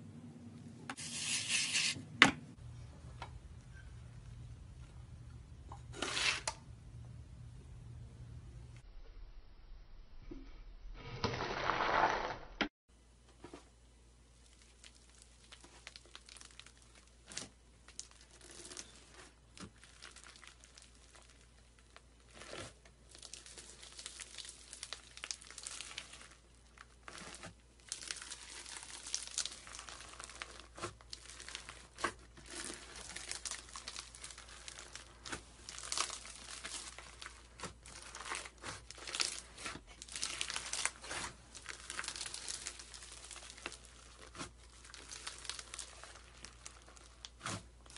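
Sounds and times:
foam beads crinkling: 17.9s - 47.9s.

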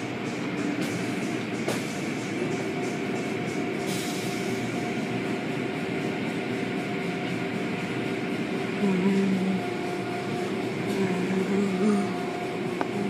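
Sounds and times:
car wash machinery rumbling: 0.0s - 13.0s.

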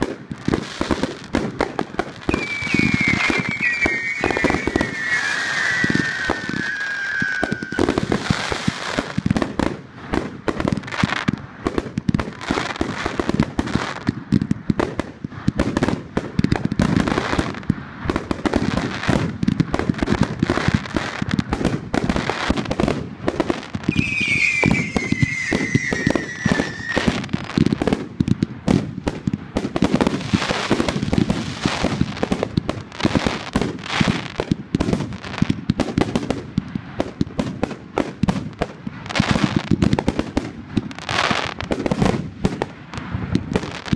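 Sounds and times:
fireworks barrage: 0.0s - 43.9s
falling whistle tone: 2.3s - 8.0s, 23.9s - 27.2s.

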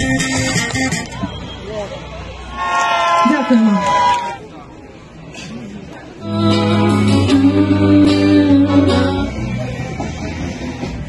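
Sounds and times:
strummed guitar chords: 6.2s - 9.6s.

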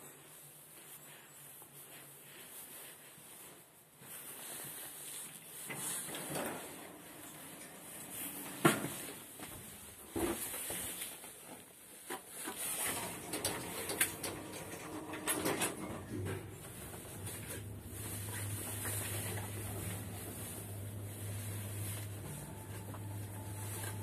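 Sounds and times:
elevator doors sliding and clunking: 5.7s - 10.4s, 12.5s - 24.0s.

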